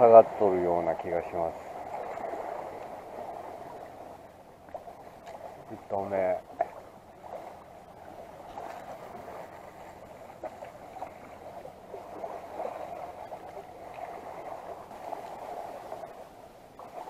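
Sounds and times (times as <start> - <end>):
seawater lapping on concrete: 0.0 - 17.0.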